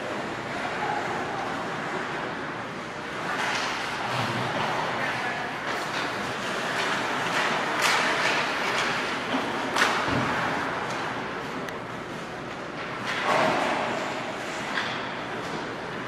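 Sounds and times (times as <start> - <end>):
arena noise: 0.0 - 16.0
hockey sticks and puck knocks: 3.2 - 4.8, 5.6 - 11.2, 12.5 - 15.8.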